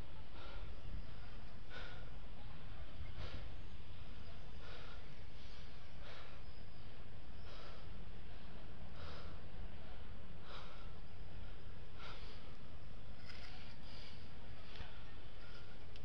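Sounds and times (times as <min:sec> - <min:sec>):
person breathing close: 0:07.4 - 0:14.9.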